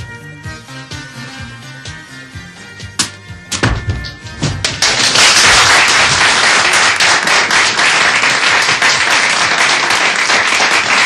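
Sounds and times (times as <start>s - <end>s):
audience applause: 4.6s - 11.0s.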